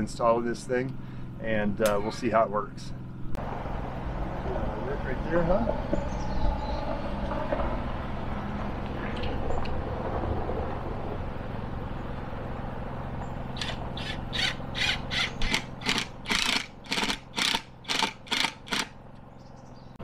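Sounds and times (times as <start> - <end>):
screwdriver scraping strokes: 13.6 - 18.9.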